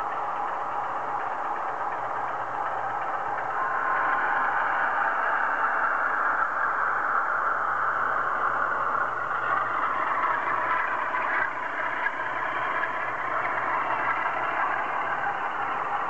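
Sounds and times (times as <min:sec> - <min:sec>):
model train running on track: 0:00.0 - 0:16.0.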